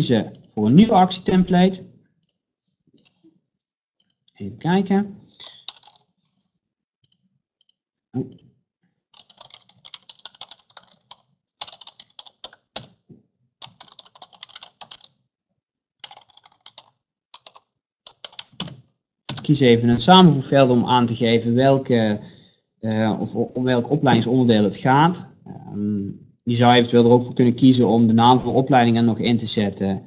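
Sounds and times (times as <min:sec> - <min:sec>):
typing on computer keyboard: 0:05.4 - 0:06.1, 0:09.1 - 0:13.0, 0:13.6 - 0:15.2, 0:16.0 - 0:19.5.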